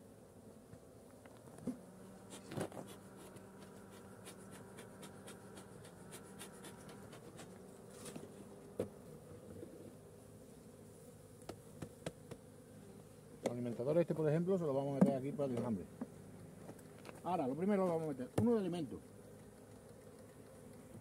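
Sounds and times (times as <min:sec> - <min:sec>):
honeybees humming: 0:00.0 - 0:21.0
wooden hive knocks and clicks: 0:00.7 - 0:09.8, 0:11.4 - 0:12.5, 0:13.4 - 0:13.8, 0:14.8 - 0:21.0.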